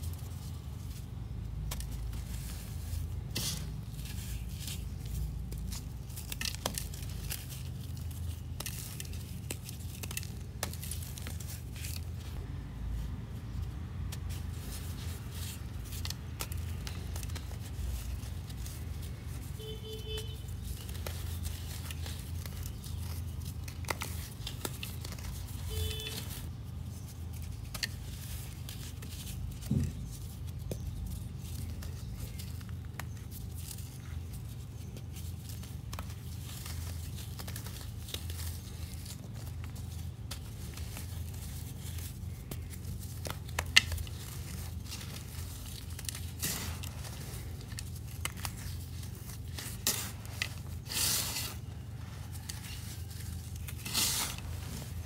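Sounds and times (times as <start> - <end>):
sand pouring and sifting: 44.0 - 52.6, 53.7 - 55.0.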